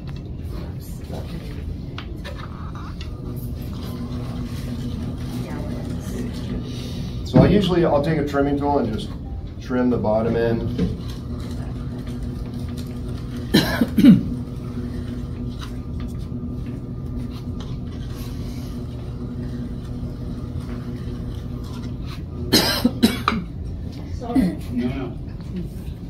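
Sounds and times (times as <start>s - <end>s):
potter's wheel motor humming: 0.0s - 26.0s
person coughing: 13.5s - 14.4s, 22.5s - 23.5s.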